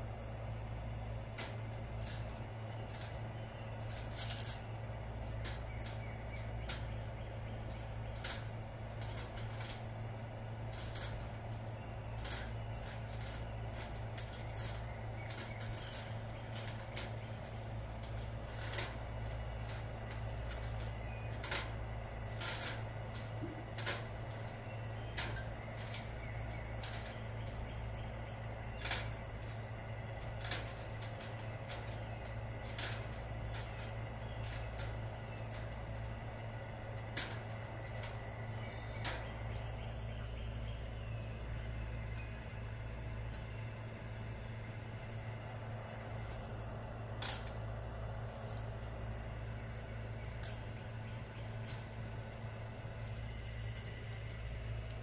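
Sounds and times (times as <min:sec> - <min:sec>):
steady low hum: 0:00.0 - 0:55.0
screws clicking on wire mesh: 0:01.4 - 0:03.2, 0:03.8 - 0:06.9, 0:07.7 - 0:09.9, 0:10.7 - 0:28.1, 0:28.8 - 0:36.1, 0:36.8 - 0:38.2.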